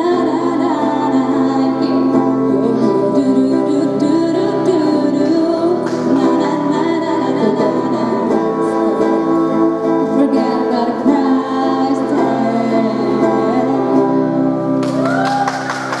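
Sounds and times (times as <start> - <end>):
woman singing pop song: 0.0 - 15.2
acoustic guitars strumming: 0.0 - 16.0.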